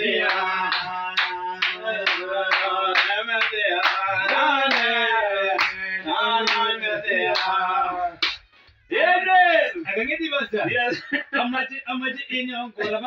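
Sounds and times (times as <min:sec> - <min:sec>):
hands clapping on beat: 0:00.0 - 0:07.6, 0:08.2 - 0:08.6
men singing gospel song: 0:00.0 - 0:08.3.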